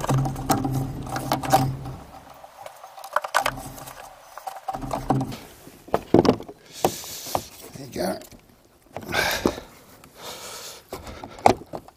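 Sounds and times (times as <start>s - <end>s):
plastic knocks and scrapes: 0.0s - 2.4s, 3.0s - 7.6s.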